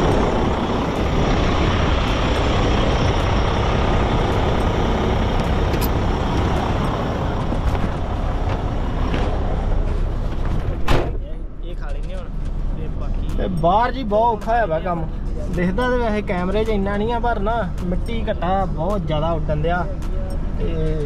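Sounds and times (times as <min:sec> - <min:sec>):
strong gusting wind: 0:00.0 - 0:10.9.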